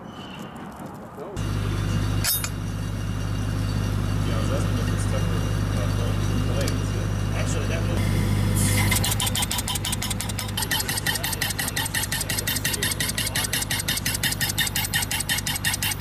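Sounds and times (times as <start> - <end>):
engine hum: 0.7 - 16.0
pneumatic tool hammering: 2.2 - 2.8, 8.0 - 16.0.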